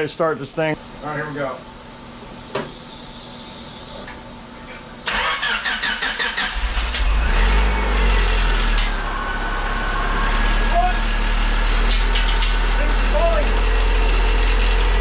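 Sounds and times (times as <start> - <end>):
starter motor cranking: 5.1 - 8.9
car engine running: 6.6 - 15.0.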